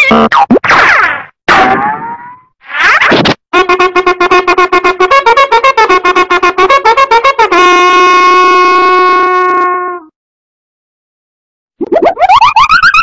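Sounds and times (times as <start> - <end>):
comic horn notes: 3.6 - 10.1.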